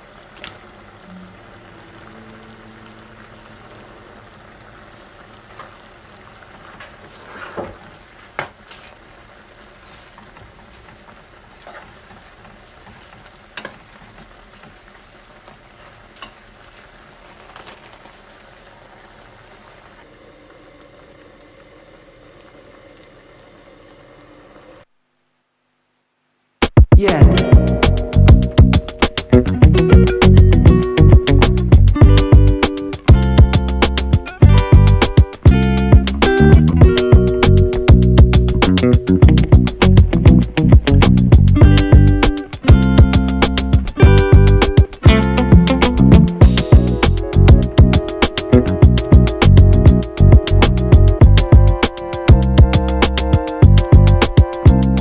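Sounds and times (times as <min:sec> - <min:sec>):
stew bubbling: 0:00.0 - 0:24.8
loud music: 0:26.6 - 0:55.0.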